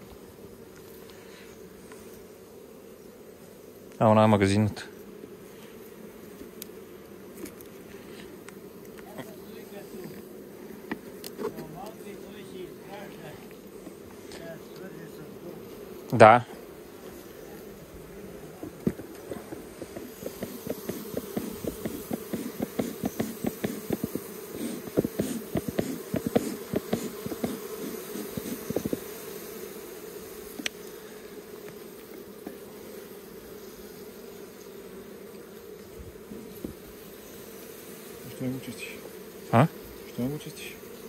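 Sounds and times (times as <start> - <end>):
bees humming: 0.0 - 41.0
wooden hive frames clicking: 18.5 - 29.2.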